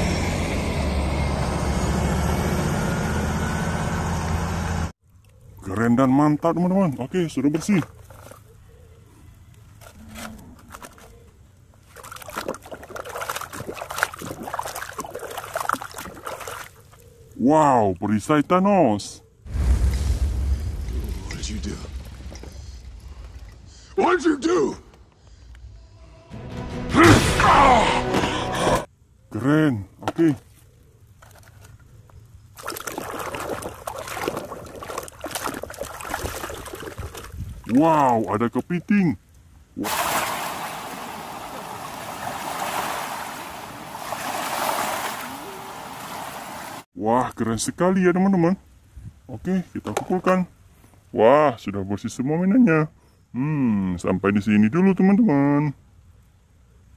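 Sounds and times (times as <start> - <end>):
water splashing in a tub: 11.8 - 17.0, 32.6 - 38.2, 39.8 - 46.9.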